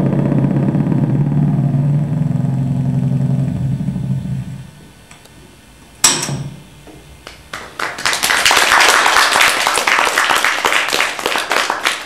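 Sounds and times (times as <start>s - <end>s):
audience applauding: 7.5s - 12.0s.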